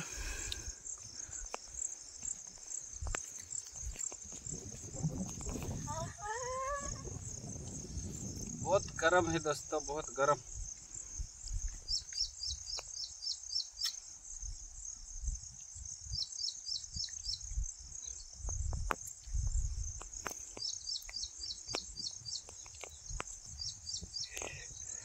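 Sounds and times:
insects trilling and chirping: 0:00.0 - 0:25.0.

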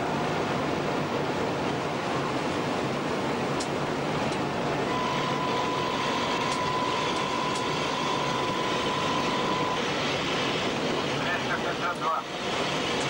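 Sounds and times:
locomotive running at high speed: 0:00.0 - 0:13.0
steady high beep: 0:04.9 - 0:09.8.

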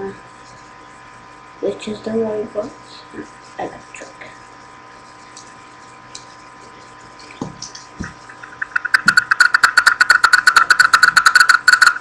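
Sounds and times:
rapid sharp clicks: 0:07.6 - 0:12.0.

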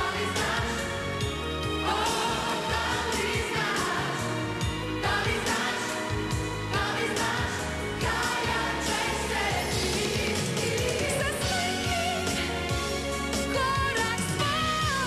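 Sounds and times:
band with drum beat: 0:01.9 - 0:15.0
woman singing pop song: 0:09.6 - 0:12.5, 0:13.4 - 0:15.0.

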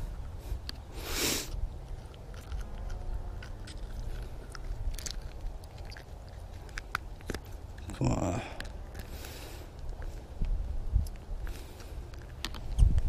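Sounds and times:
wind rumbling on microphone: 0:09.8 - 0:13.0.

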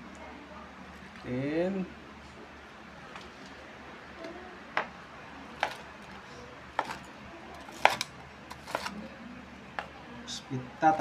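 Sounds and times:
knife crunching through breaded cutlet: 0:07.6 - 0:09.0.

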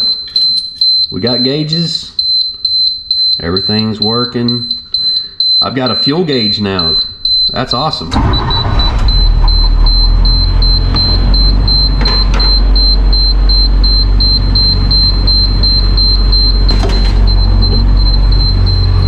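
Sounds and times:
high-pitched warning beeper: 0:00.0 - 0:19.0
diesel engine idling: 0:08.1 - 0:19.0.

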